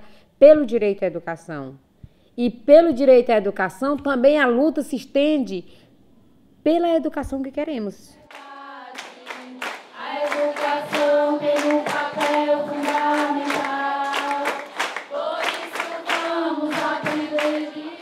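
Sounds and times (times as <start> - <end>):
hand claps: 8.3 - 17.8
group singing in unison: 8.3 - 18.0.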